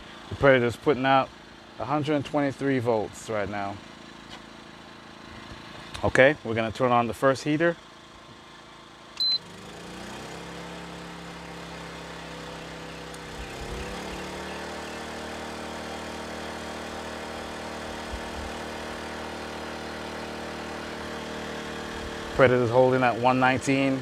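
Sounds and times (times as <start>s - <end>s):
generator engine speeding up: 8.1s - 24.0s
short beep: 9.2s - 9.5s.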